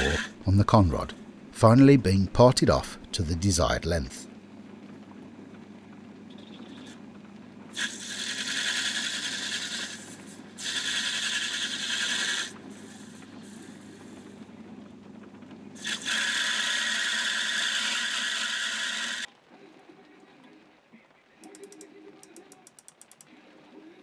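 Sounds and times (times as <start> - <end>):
lathe motor hum: 0.0 - 0.4
high hissing cutting noise: 0.0 - 1.0, 7.8 - 14.2, 15.8 - 19.3.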